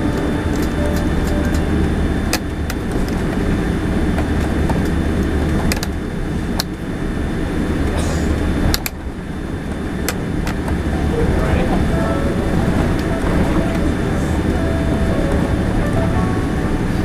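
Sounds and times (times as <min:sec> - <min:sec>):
aircraft cabin low rumble: 0:00.0 - 0:17.0
sharp clicks and rattles: 0:00.2 - 0:03.5.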